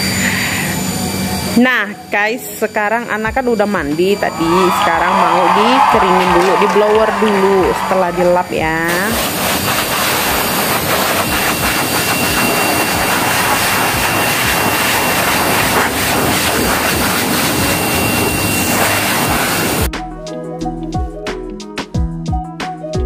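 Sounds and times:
pet dryer blowing air: 0.0 - 2.1, 3.2 - 19.9
music: 0.1 - 8.9, 18.1 - 23.0.

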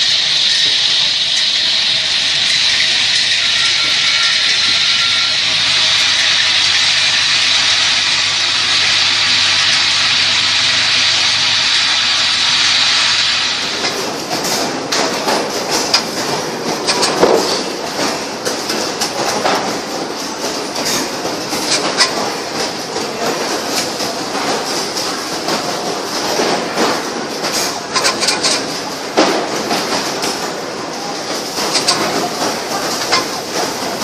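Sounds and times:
machinery hissing: 0.0 - 34.0
machine parts clattering and clicking: 13.8 - 34.0.

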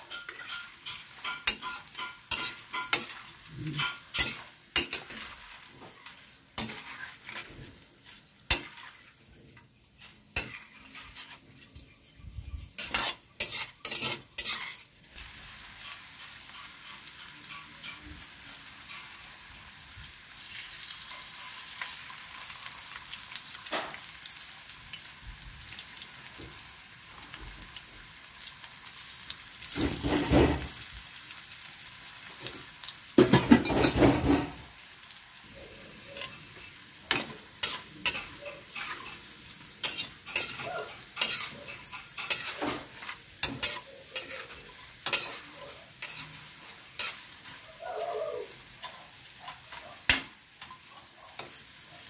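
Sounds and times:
metal utensils scraping a wok: 0.0 - 19.5, 29.6 - 30.8, 32.3 - 34.8, 35.5 - 47.6
hot oil sizzling: 0.0 - 52.0.

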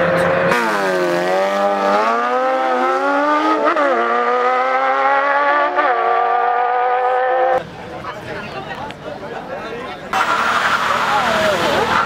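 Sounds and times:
motorcycles accelerating hard: 0.5 - 7.6.

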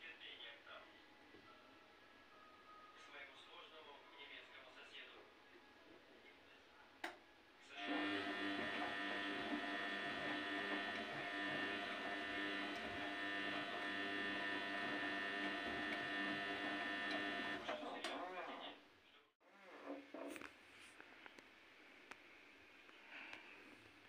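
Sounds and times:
washing machine motor whine: 7.8 - 18.1.

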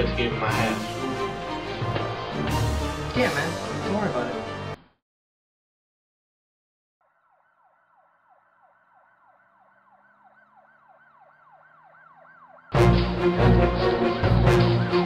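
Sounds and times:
faint emergency siren: 7.0 - 15.0.

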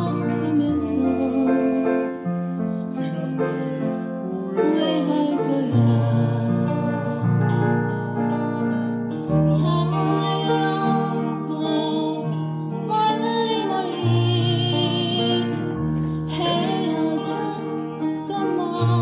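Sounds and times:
digital piano ballad: 0.0 - 19.0.

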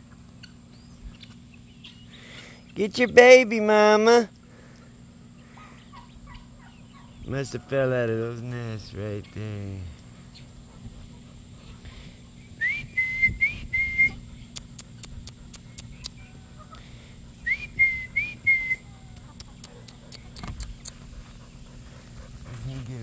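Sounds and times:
whistled phrase: 12.6 - 14.2, 17.5 - 18.9.

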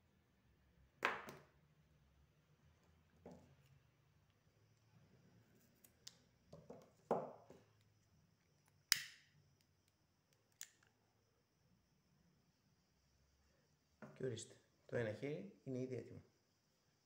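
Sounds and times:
lighter striking click: 8.9 - 9.2.

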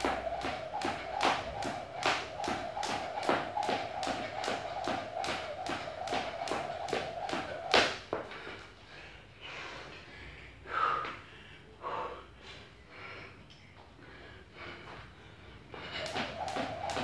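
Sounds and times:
person breathing hard: 8.3 - 16.4.

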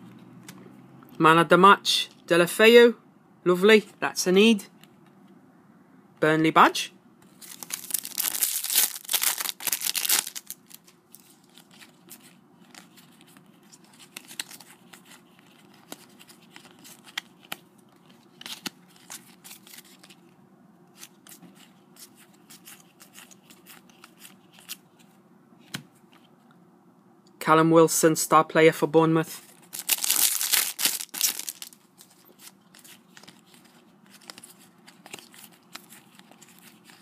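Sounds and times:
foil packet tearing: 7.4 - 10.8, 29.6 - 34.4.

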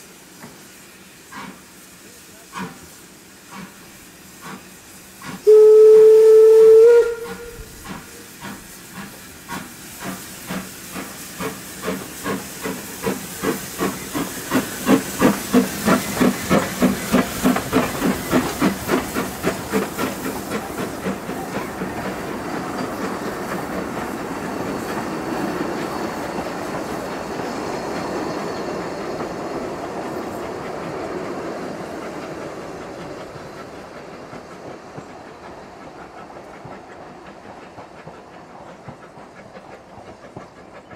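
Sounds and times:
steam locomotive exhaust beats: 0.0 - 40.9
train rolling: 0.0 - 40.9
steam locomotive whistle: 5.4 - 8.4.

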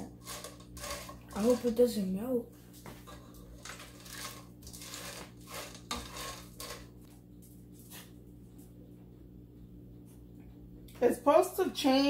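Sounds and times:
candies rattling in a pot: 0.0 - 2.1, 3.1 - 7.0.

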